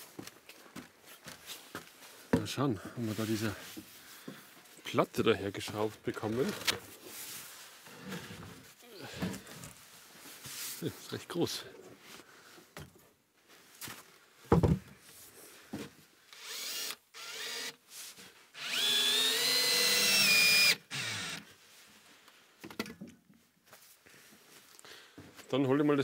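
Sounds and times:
cordless drill whine: 16.3 - 17.8, 18.5 - 21.5.

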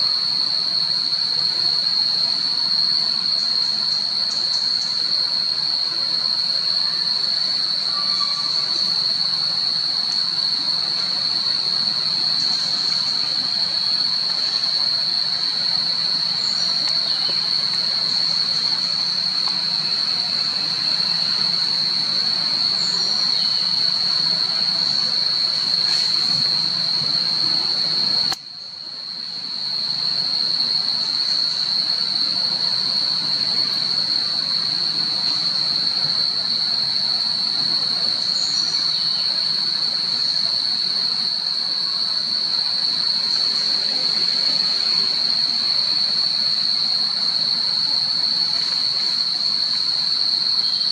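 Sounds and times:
even hiss: 0.0 - 50.9
high-pitched insect chorus: 0.0 - 50.9.

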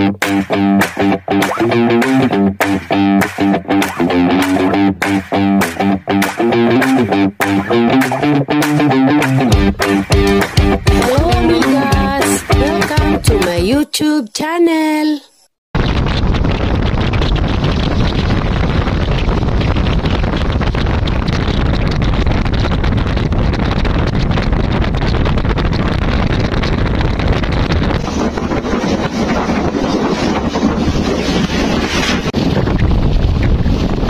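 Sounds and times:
wind buffeting microphone: 15.8 - 34.0.

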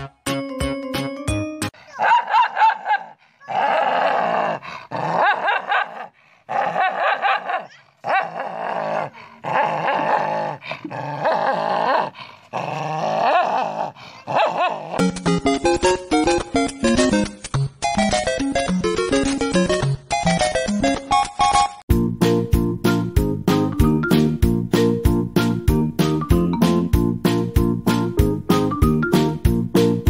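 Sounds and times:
background music: 0.0 - 1.8, 15.0 - 30.0
dog snarling and barking: 1.9 - 15.0.

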